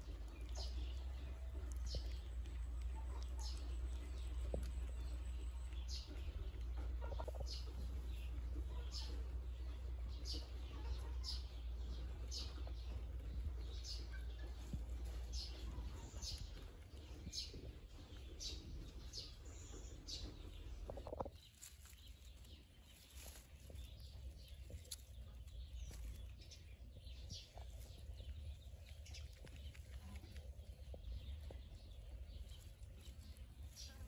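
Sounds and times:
low rumble: 0:00.0 - 0:34.0.

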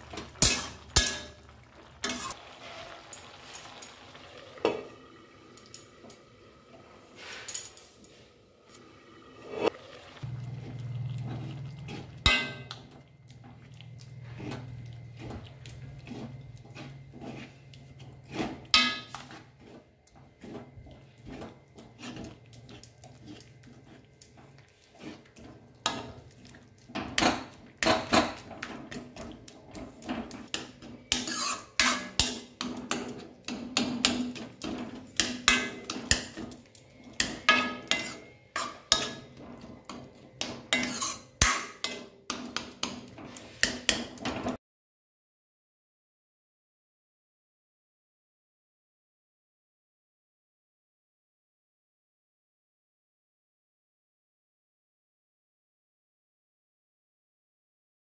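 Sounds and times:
metal spoon scraping a pan: 0:00.0 - 0:44.6.

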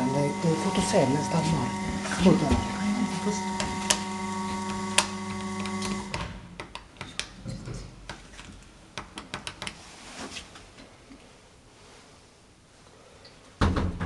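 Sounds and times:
elevator electric hum: 0:00.0 - 0:06.5.

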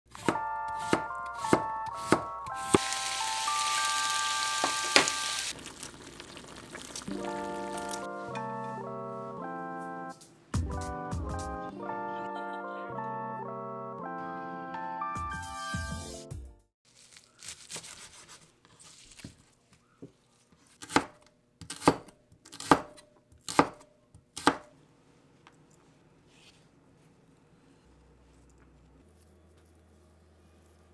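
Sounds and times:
knife chopping on wooden board: 0:00.1 - 0:02.9, 0:20.8 - 0:24.7
meat sizzling in a frying pan: 0:02.7 - 0:08.0.

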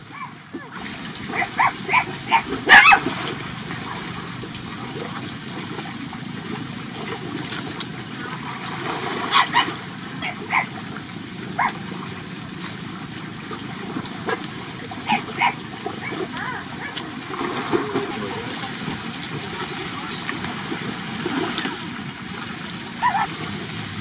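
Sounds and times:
high-pitched animal calls: 0:01.3 - 0:03.0, 0:09.3 - 0:10.7, 0:15.0 - 0:17.0, 0:19.6 - 0:20.5, 0:23.0 - 0:23.3.

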